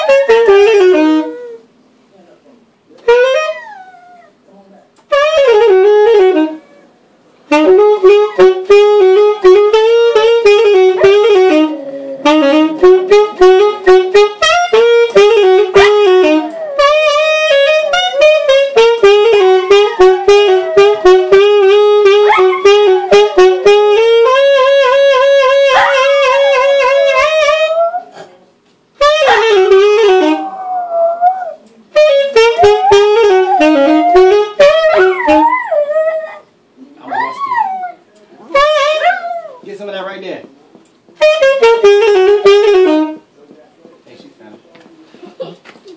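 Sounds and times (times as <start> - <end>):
saxophone melody: 0.0 - 1.6, 3.0 - 4.2, 5.0 - 6.8, 7.5 - 28.2, 29.0 - 36.4, 37.0 - 39.6, 41.2 - 43.3
dog howling: 3.4 - 4.4, 19.3 - 21.4, 25.7 - 28.2, 30.2 - 31.6, 32.6 - 38.0, 38.6 - 39.7.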